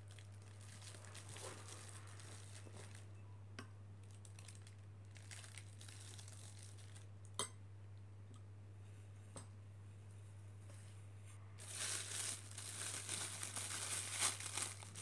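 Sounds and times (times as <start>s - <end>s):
plastic piping bag crinkling: 0.0s - 3.1s, 4.0s - 7.1s, 11.6s - 15.0s.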